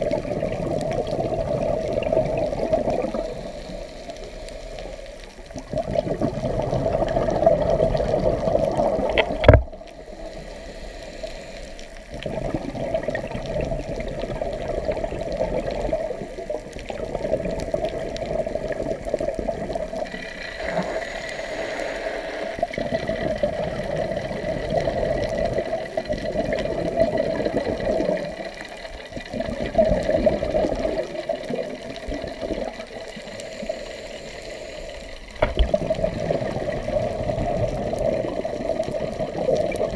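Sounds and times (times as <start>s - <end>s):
underwater exhaled bubbles: 0.0s - 39.9s.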